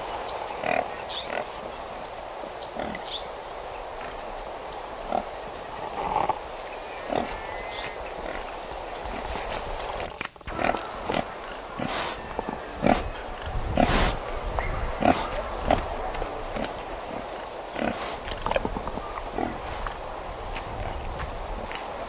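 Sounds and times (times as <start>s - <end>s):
pigs grunting: 5.1s - 6.4s, 7.0s - 7.4s, 10.4s - 14.2s, 14.8s - 20.0s.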